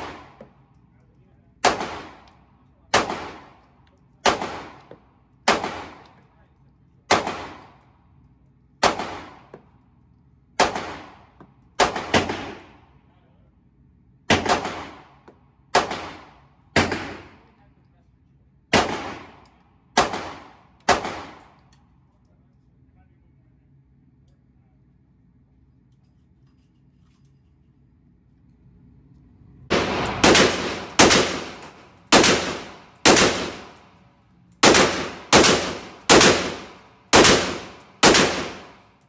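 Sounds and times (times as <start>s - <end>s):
pistol shots echoing: 5.5s - 6.0s, 10.6s - 12.7s, 29.7s - 33.9s, 34.6s - 39.0s.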